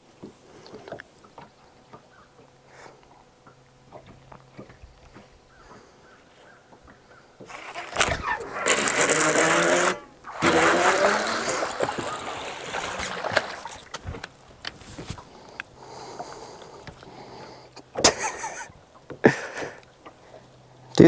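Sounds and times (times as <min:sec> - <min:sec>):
fish splashing at the surface: 0:07.4 - 0:17.3.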